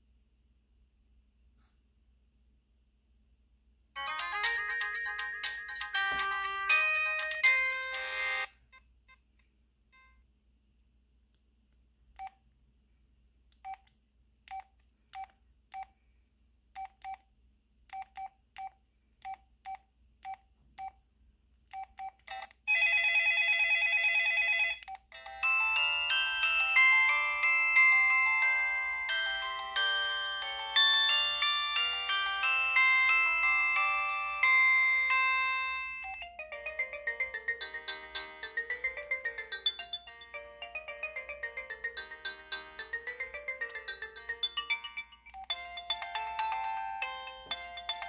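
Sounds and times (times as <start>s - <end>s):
polyphonic ringtone melody: 4.0s - 8.6s, 25.1s - 48.0s.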